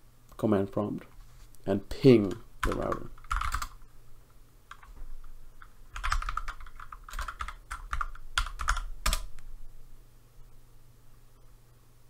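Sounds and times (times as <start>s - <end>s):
computer keyboard typing: 2.2s - 3.8s, 4.7s - 9.4s.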